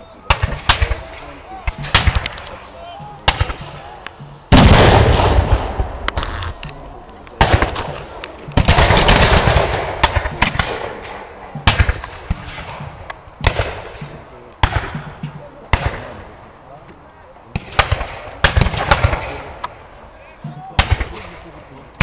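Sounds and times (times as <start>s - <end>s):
sharp musket shots: 0.3s - 3.9s, 4.5s - 6.7s, 7.4s - 16.2s, 17.5s - 19.8s, 20.8s - 21.4s
heavy cannon blasts: 3.2s - 6.6s, 7.4s - 16.2s.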